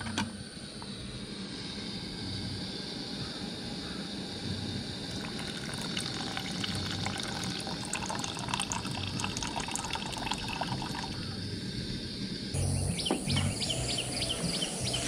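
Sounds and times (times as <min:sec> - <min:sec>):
milk pouring into tea: 0:05.1 - 0:11.2.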